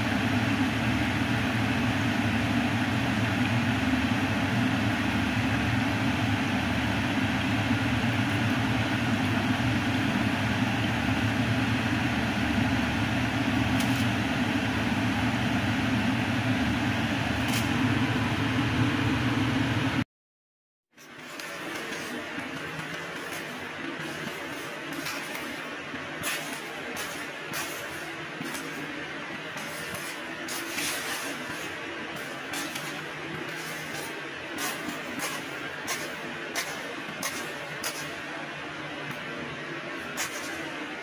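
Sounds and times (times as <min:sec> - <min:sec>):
oil sizzling: 0:21.0 - 0:38.3.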